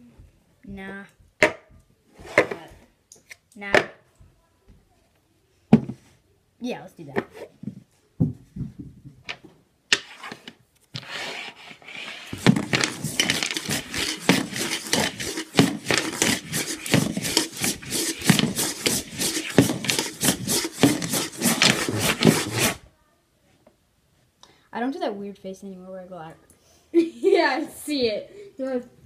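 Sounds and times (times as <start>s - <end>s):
dice rattling in a cup: 12.4s - 22.8s.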